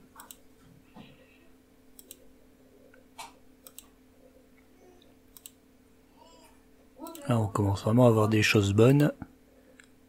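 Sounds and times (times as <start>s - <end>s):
faint steady hum: 0.0s - 10.0s
computer mouse clicking: 0.2s - 0.4s, 2.0s - 2.3s, 2.9s - 4.0s, 5.3s - 5.6s.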